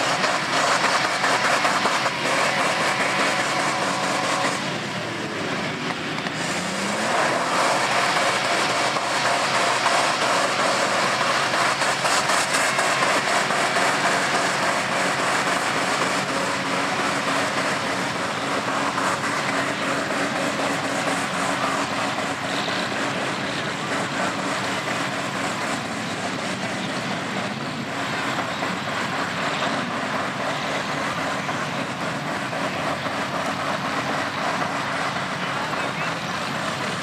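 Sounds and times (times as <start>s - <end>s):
truck engine revving at rev limiter: 0.0s - 37.0s
wheels spinning in mud: 0.0s - 37.0s.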